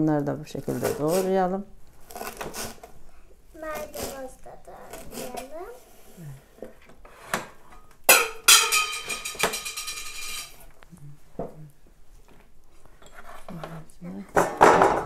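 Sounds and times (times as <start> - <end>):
kitchen utensil clatter: 8.1 - 10.6.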